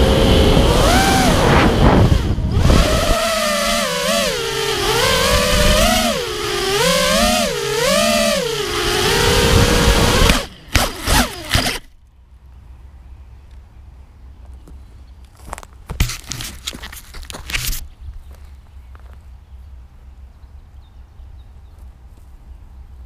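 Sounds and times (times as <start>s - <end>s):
quadcopter motors whining: 0.0s - 12.0s.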